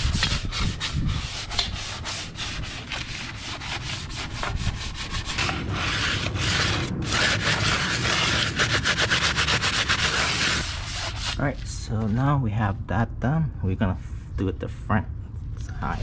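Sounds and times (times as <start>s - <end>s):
brush scrubbing wheel: 0.0s - 11.6s.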